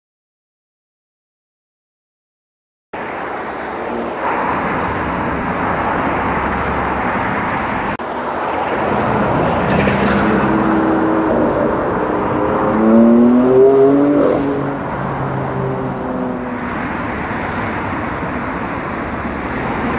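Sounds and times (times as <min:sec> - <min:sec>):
road traffic noise: 0:03.0 - 0:19.9
vehicle engine accelerating: 0:09.0 - 0:16.5.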